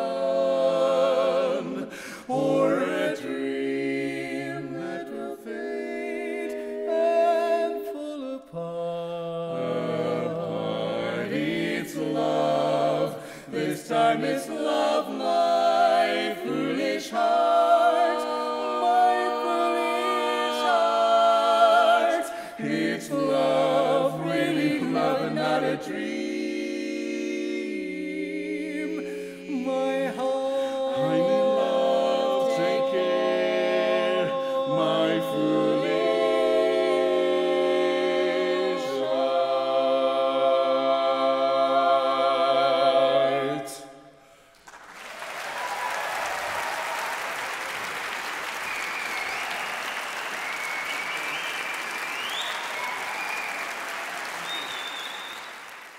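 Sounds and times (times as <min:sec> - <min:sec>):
quartet singing a cappella: 0:00.0 - 0:44.1
audience applauding: 0:44.6 - 0:55.9.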